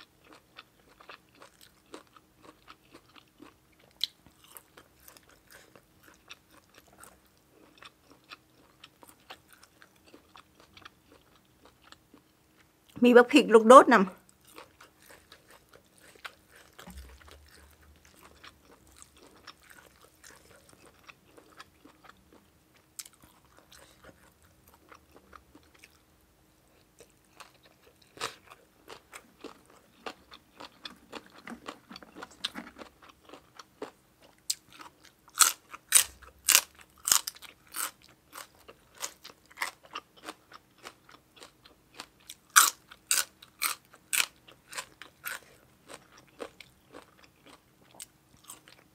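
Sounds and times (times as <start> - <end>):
soft chewing: 0.0 - 13.0, 14.2 - 48.9
crisp vegetable crunches: 14.4 - 22.1, 27.3 - 48.8.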